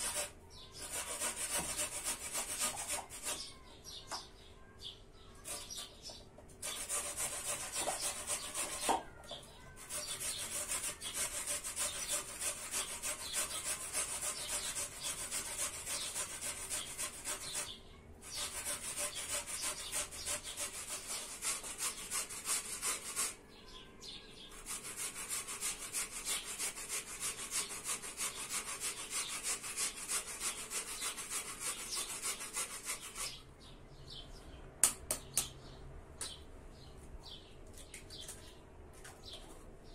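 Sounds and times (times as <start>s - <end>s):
potato rasping on grater: 9.7s - 23.4s, 24.6s - 33.4s.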